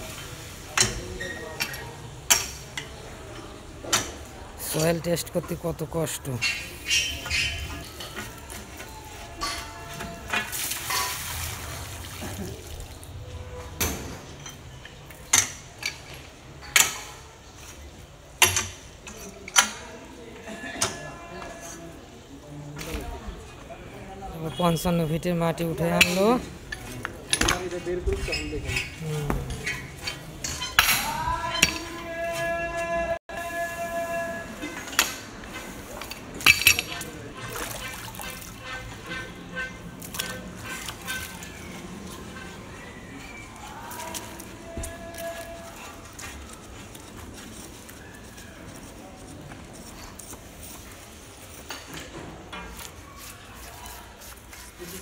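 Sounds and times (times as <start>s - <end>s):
muddy water splashing: 6.7s - 13.7s, 35.6s - 48.0s
metal pipe clanks: 26.0s - 32.0s, 34.6s - 42.8s
wrench clinking on metal tube: 36.0s - 37.2s.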